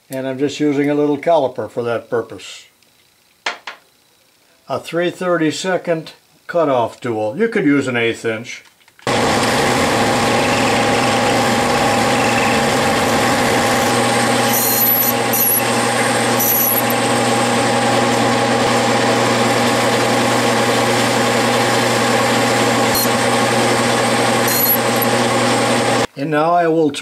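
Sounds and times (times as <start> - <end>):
metal lathe humming: 9.1 - 26.1.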